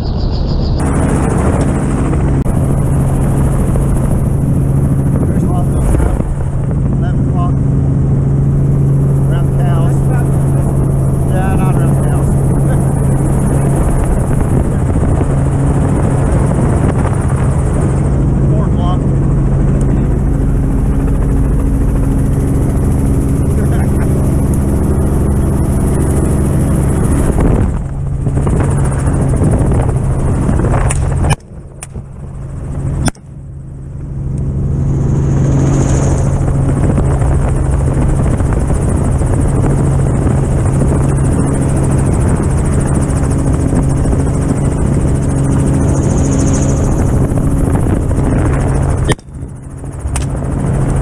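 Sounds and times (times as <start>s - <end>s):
helicopter rotor and turbine: 0.0s - 51.0s.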